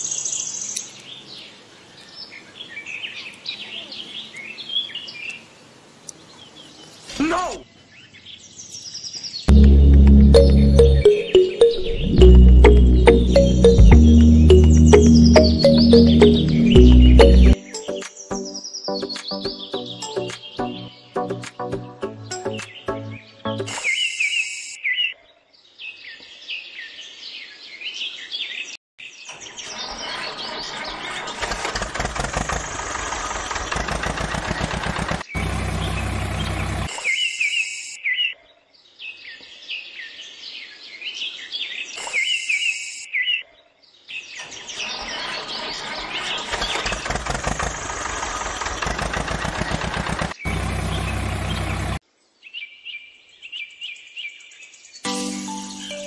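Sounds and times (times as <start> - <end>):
deep steady tone: 9.5 - 17.6
bird chirps: 10.3 - 21.2, 22.2 - 25.2, 39.1 - 47.1
vehicle engine: 12.2 - 17.6, 29.6 - 36.9, 44.8 - 52.0.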